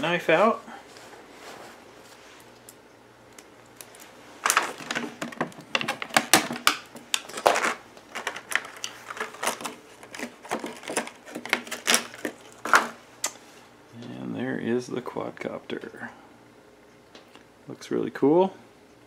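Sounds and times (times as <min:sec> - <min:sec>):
plastic tray crackling and clicking: 0:04.4 - 0:13.0.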